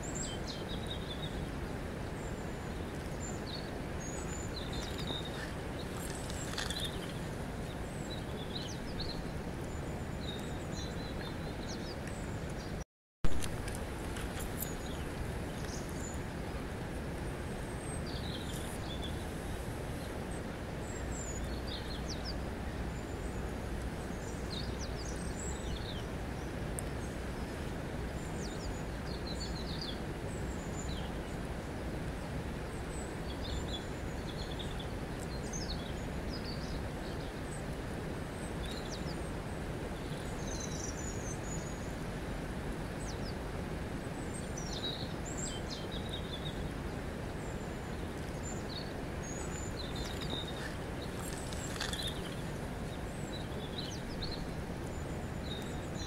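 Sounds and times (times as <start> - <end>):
river flowing over stones: 0.0 - 12.6, 13.3 - 56.0
birds chirping: 2.2 - 12.8, 47.4 - 56.0.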